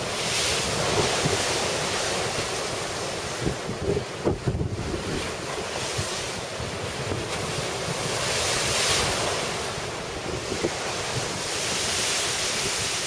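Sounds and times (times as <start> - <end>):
storm surf breaking: 0.0 - 13.0
wind buffeting microphone: 0.0 - 13.0.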